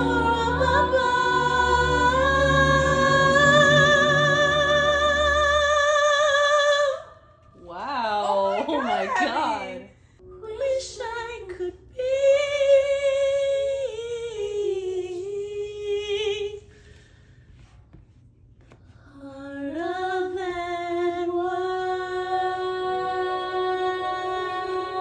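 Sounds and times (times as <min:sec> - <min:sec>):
woman singing unaccompanied: 0:08.3 - 0:16.6.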